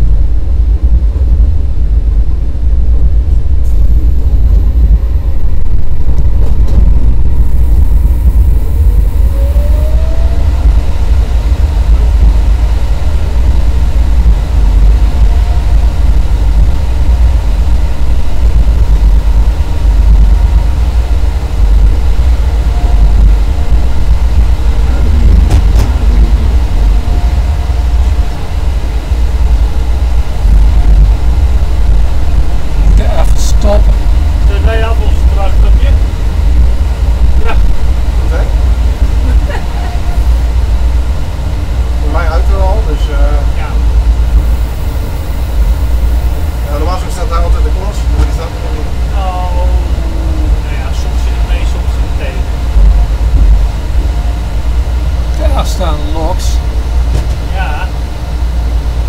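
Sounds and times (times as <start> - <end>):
locomotive low rumble: 0.0 - 59.0
rising tone: 22.8 - 29.6, 49.4 - 50.7.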